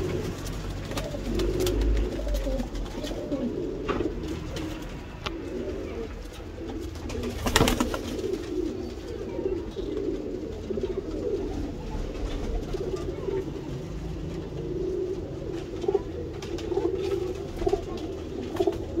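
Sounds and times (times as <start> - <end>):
pigeons cooing: 0.0 - 19.0.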